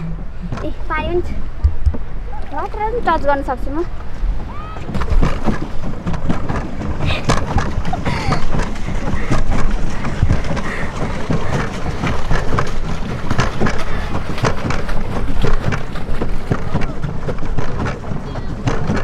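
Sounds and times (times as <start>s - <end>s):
water splashing around boat: 0.0s - 19.0s
wind rumbling on microphone: 0.0s - 19.0s.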